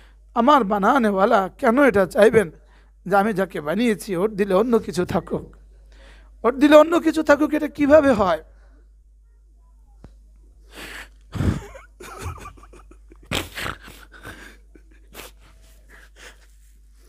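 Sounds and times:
low steady hum: 0:00.0 - 0:17.0
sniffs and sharp breaths: 0:13.3 - 0:17.0.

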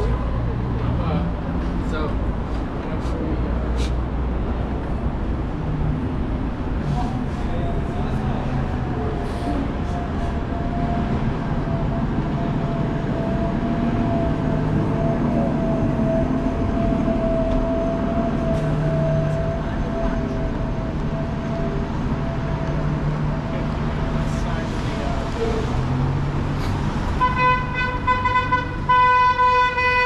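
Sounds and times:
low rumble of city vehicles: 0:00.0 - 0:30.0.

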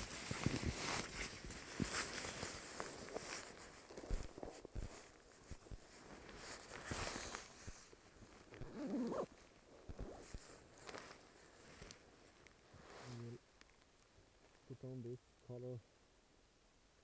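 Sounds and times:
sleeping bag rustling: 0:00.0 - 0:13.4.

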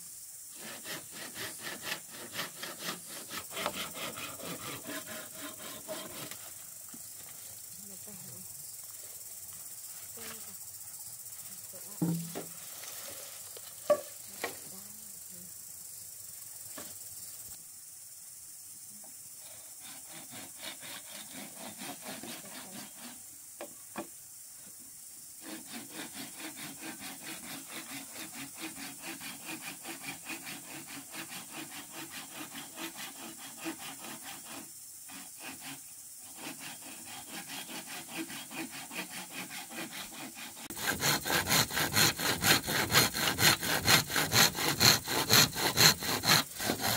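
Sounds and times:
hand saw cutting bamboo: 0:00.5 - 0:06.6, 0:12.0 - 0:12.5, 0:19.8 - 0:23.2, 0:25.4 - 0:46.9
bamboo poles knocking: 0:12.0 - 0:12.6, 0:13.8 - 0:14.6.

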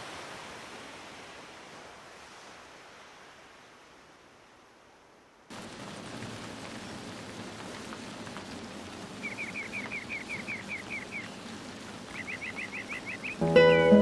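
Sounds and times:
steady rain hiss: 0:00.0 - 0:14.0
bird chirping: 0:09.2 - 0:11.5, 0:12.1 - 0:13.6.

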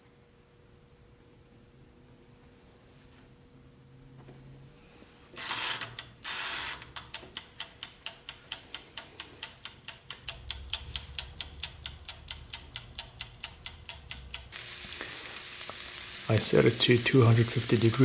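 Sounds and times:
timer dial ratcheting: 0:05.4 - 0:14.6
timer ticking: 0:06.7 - 0:18.0.

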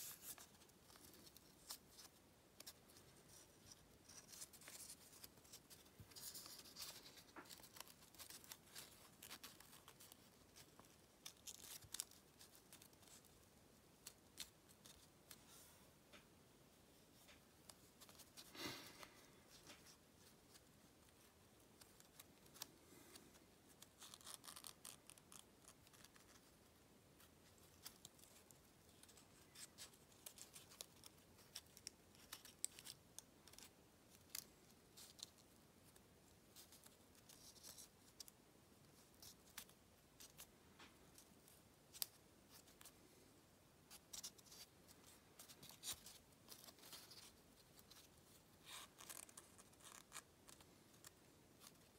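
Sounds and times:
paper being folded and creased: 0:00.0 - 0:15.7, 0:17.1 - 0:26.6, 0:27.4 - 0:38.3, 0:43.9 - 0:51.9.

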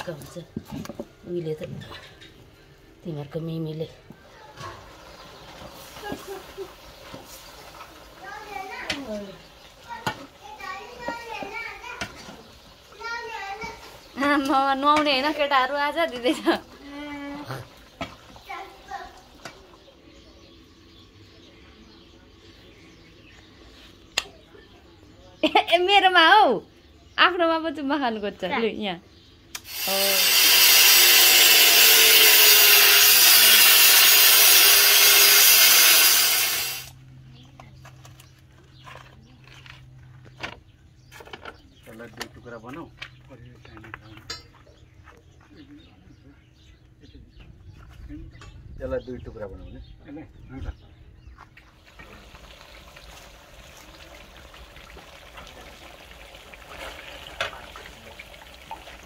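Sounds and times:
angle grinder cutting metal pipe: 0:29.6 - 0:36.9
curry bubbling and crackling: 0:51.6 - 0:59.0.

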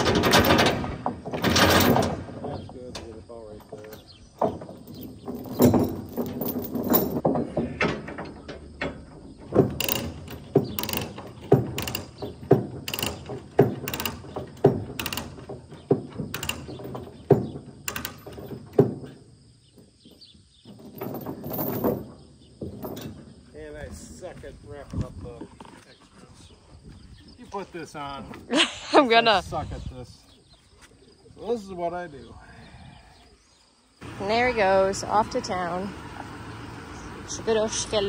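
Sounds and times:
chain rattling: 0:00.0 - 0:02.3, 0:02.9 - 0:07.3, 0:08.4 - 0:23.4
ratchet binder clicking: 0:09.8 - 0:11.2, 0:12.9 - 0:14.4.

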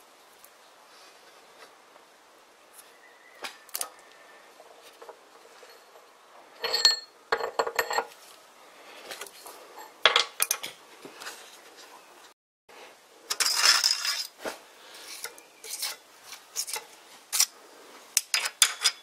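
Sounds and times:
metal clinks and scrapes: 0:04.7 - 0:08.2, 0:13.3 - 0:14.4, 0:15.1 - 0:17.5, 0:18.2 - 0:19.0.

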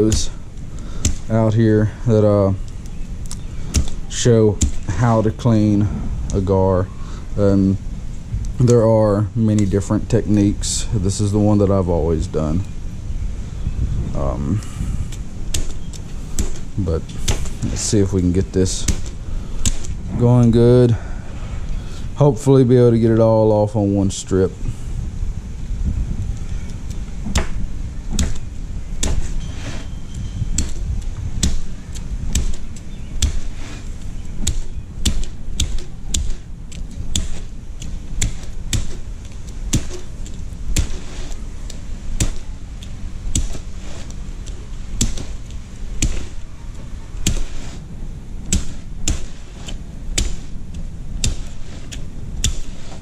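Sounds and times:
hatchet chopping scales: 0:00.0 - 0:01.5, 0:03.3 - 0:05.2, 0:15.5 - 0:20.0, 0:27.2 - 0:39.1, 0:39.7 - 0:41.4, 0:42.1 - 0:43.7, 0:44.4 - 0:46.4, 0:47.2 - 0:47.7, 0:48.4 - 0:53.0.

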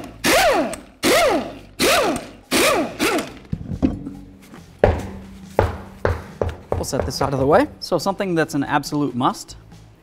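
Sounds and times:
impact wrench whirring: 0:00.0 - 0:03.5.

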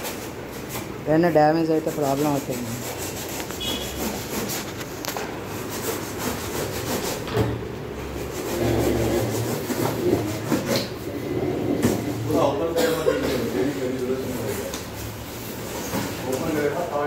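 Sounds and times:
cardboard scraping and rubbing: 0:01.7 - 0:12.1.

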